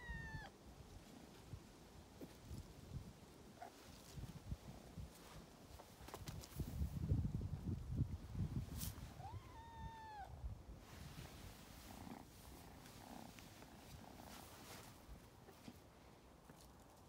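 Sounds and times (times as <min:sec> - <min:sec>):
kitten meowing: 0:00.0 - 0:00.5, 0:09.2 - 0:10.4.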